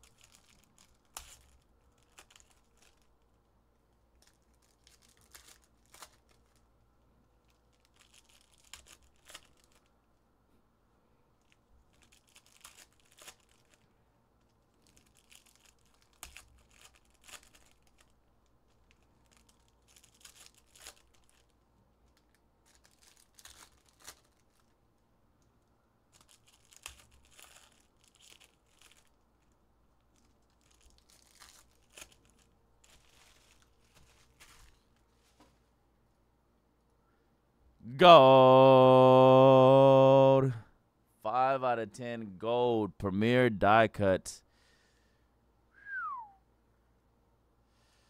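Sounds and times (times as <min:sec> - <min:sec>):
cards and foil wrappers crinkling: 0:00.0 - 0:03.4, 0:04.1 - 0:06.7, 0:07.4 - 0:09.9, 0:11.4 - 0:24.8, 0:26.1 - 0:35.4.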